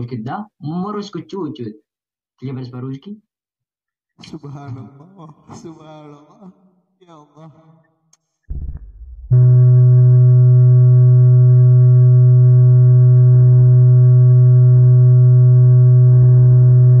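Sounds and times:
electronic test tone hum: 9.3 - 17.0.

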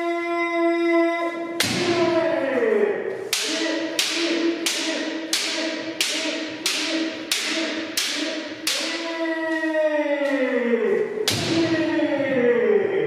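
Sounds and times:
bamboo swords cracking together: 3.3 - 9.0
long held shout: 7.6 - 13.0.

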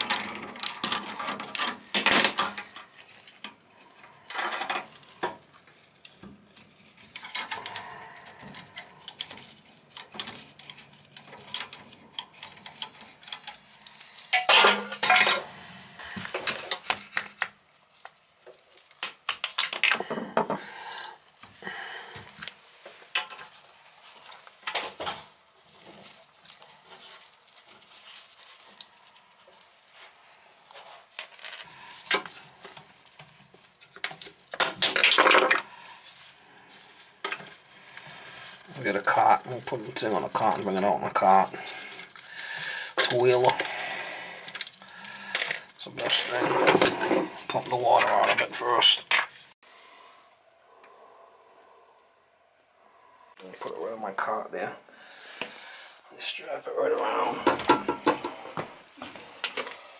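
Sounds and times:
wrench clinking on plumbing fittings: 14.3 - 15.5.

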